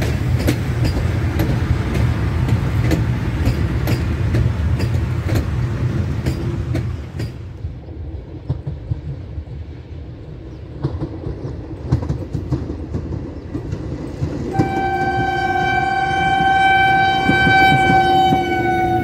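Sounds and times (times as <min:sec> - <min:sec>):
diesel locomotive engine rumbling: 0:00.0 - 0:19.0
wheels clicking over rail joints: 0:00.0 - 0:19.0.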